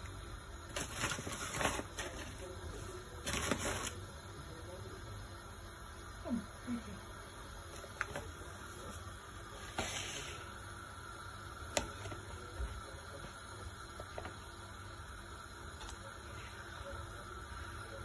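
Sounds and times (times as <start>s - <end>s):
faint steady hiss: 0.0s - 18.0s
flour rustling: 0.6s - 4.1s, 7.8s - 10.5s.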